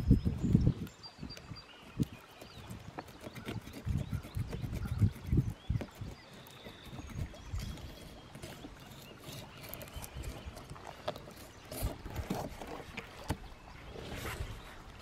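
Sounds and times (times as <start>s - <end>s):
knife scraping fish scales: 2.7s - 12.8s.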